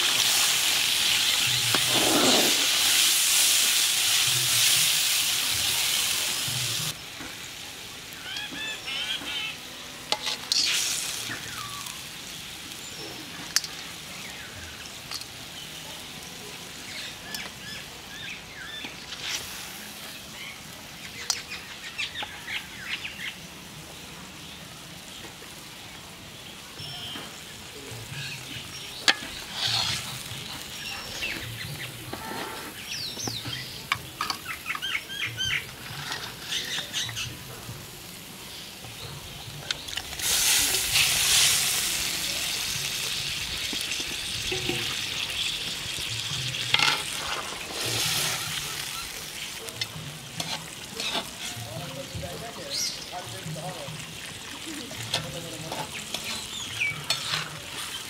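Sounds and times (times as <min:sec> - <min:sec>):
water sizzling in hot oil: 0:00.0 - 0:23.3, 0:23.9 - 0:58.0
birds chirping: 0:26.0 - 0:58.0.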